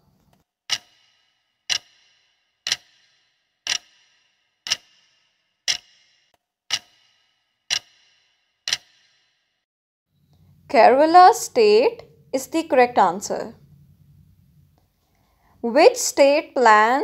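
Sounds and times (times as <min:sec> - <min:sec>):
clock ticking: 0:00.7 - 0:09.2.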